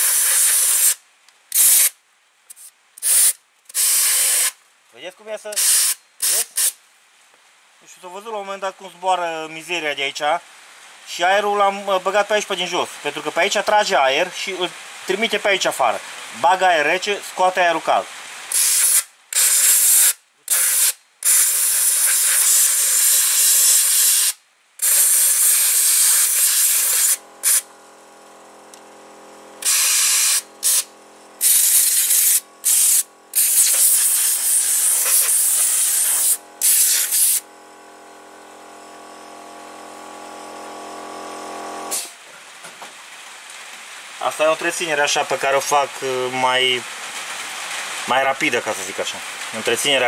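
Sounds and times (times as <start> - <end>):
compressed air hissing: 0.0 - 4.6, 5.6 - 6.8, 18.5 - 27.8, 29.5 - 37.5, 41.8 - 42.2
steady machine hum: 26.2 - 42.0.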